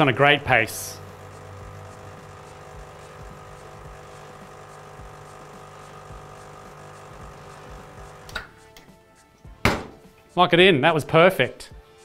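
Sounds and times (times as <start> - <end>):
espresso machine pump buzzing: 0.0 - 8.4.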